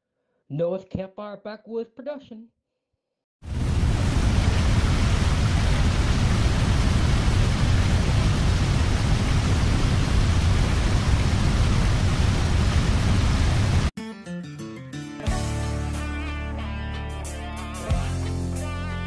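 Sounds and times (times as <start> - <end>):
heavy rain falling: 3.5 - 13.9.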